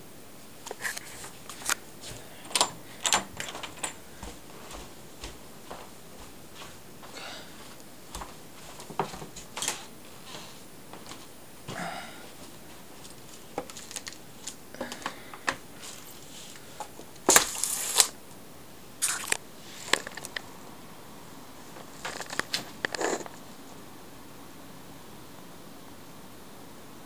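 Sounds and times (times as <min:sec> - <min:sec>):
window blinds rustling: 0:00.7 - 0:11.4, 0:12.3 - 0:18.2.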